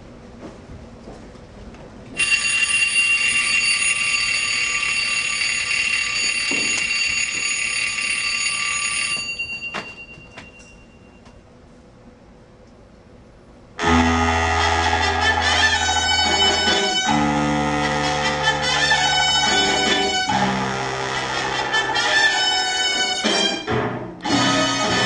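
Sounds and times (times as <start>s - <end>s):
alarm bell ringing: 2.2s - 11.3s.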